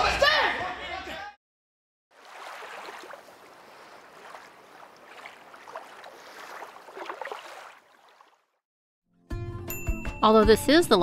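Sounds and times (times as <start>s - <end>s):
water splashes and gurgles: 2.1s - 8.6s
rushing water: 2.2s - 8.6s.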